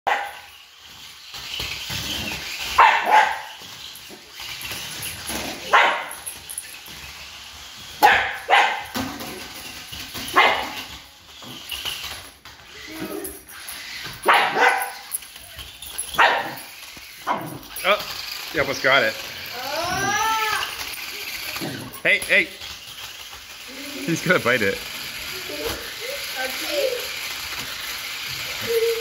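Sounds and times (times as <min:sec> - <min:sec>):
small dog barking: 0:00.1 - 0:00.4, 0:02.8 - 0:03.5, 0:05.7 - 0:06.1, 0:08.0 - 0:08.9, 0:10.4 - 0:10.8, 0:14.2 - 0:15.0, 0:16.2 - 0:16.6.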